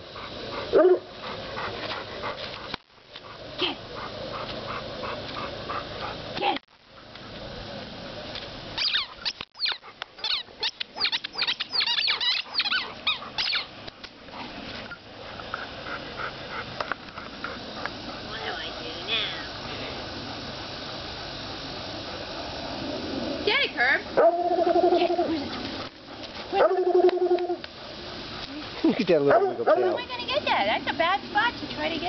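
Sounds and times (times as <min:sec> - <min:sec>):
squeaky dog toy squeaking: 0:08.8 - 0:13.7.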